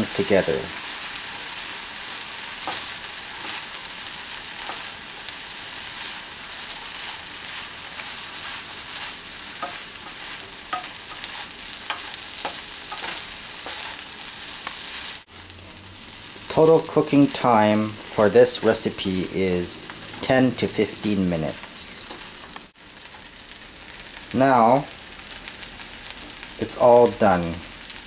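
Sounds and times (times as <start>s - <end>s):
rice sizzling in a frying pan: 0.0s - 28.0s
spatula scraping pan: 0.9s - 15.8s
spatula tapping pan: 9.5s - 14.0s.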